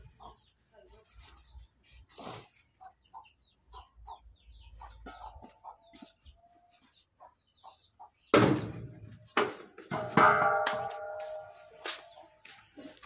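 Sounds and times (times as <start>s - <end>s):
chickens clucking: 0.0s - 13.0s
sharp knock: 9.4s - 11.4s.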